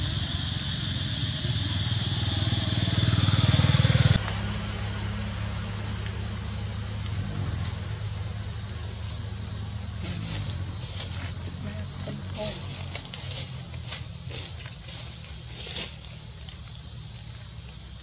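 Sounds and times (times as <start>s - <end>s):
high insect drone: 0.0s - 18.0s
low engine hum: 0.0s - 18.0s.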